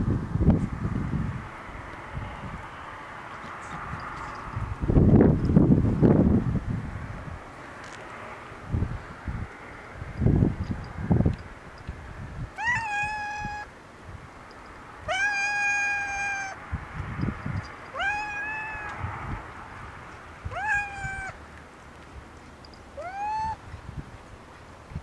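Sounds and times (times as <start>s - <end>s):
cat meowing: 12.6s - 13.7s, 15.1s - 16.6s, 17.9s - 19.1s, 20.4s - 21.4s, 23.0s - 23.6s.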